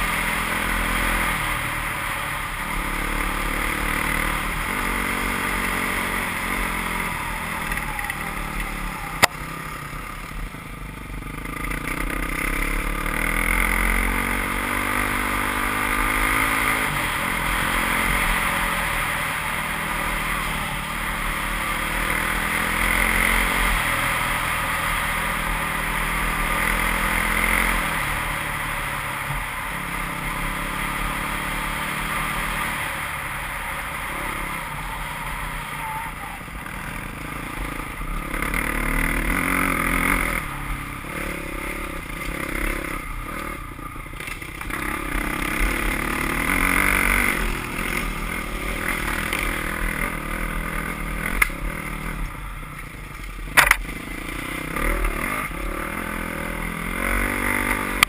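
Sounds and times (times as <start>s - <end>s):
motorcycle engine revving: 0.0s - 58.0s
wind: 0.0s - 58.0s.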